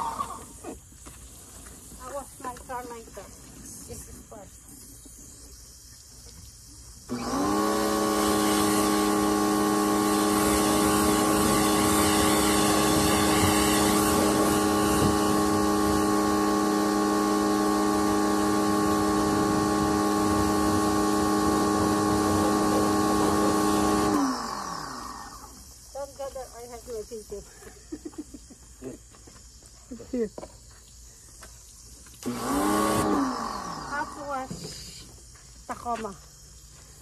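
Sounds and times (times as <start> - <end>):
water spray hissing: 0.0 - 27.2, 31.7 - 35.3
pressure washer motor whining: 7.1 - 25.6, 32.2 - 35.0.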